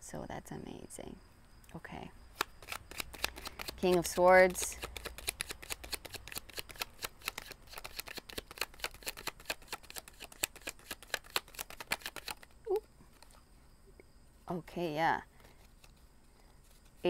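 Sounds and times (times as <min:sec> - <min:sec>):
cards being shuffled: 0:02.4 - 0:13.4.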